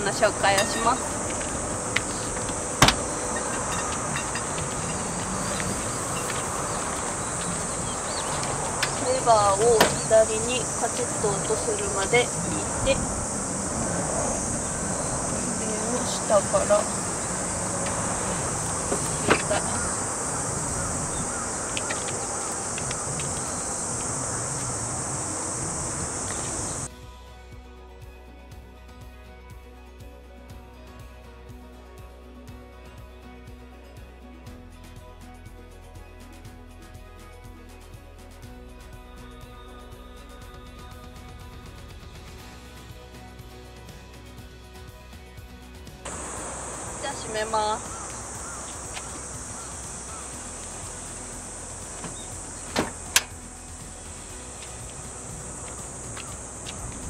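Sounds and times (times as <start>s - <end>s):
high-pitched insect drone: 0.1s - 26.9s, 46.1s - 57.0s.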